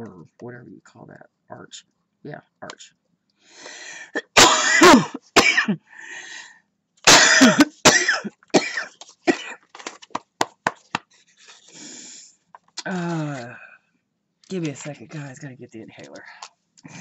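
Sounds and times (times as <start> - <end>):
person coughing: 4.1 - 5.9, 7.1 - 9.6.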